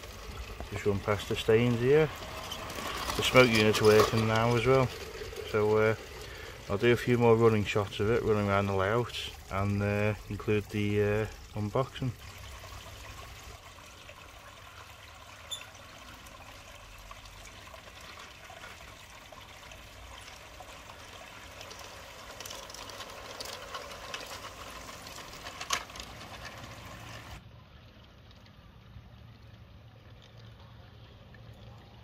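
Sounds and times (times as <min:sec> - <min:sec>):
model train wheels clicking on track: 0:00.0 - 0:09.2, 0:20.2 - 0:27.4
water trickling: 0:00.0 - 0:32.0.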